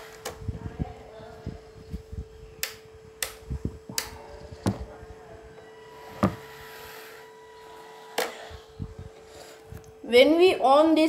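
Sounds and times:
faint hum: 0.0 - 11.0
plastic switch clicks: 2.6 - 4.8.

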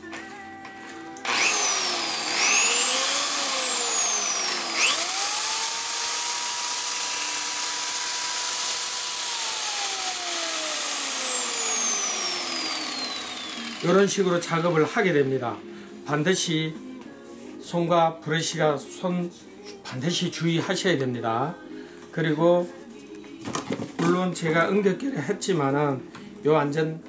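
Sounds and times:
electric polisher motor whine: 1.2 - 15.1.

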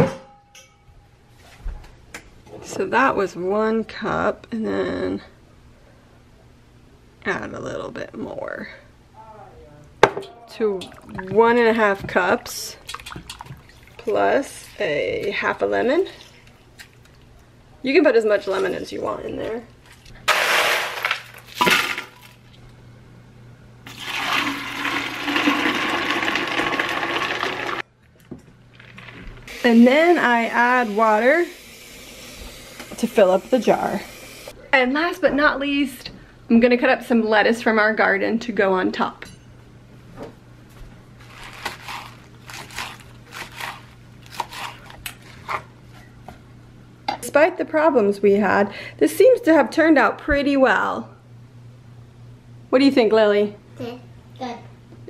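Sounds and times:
lettuce leaves tearing: 41.2 - 45.7.

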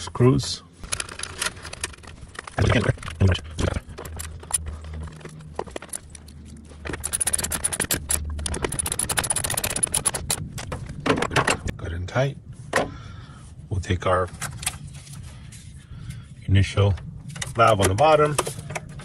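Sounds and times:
ratchet wrench clicking rapidly: 6.8 - 10.4.

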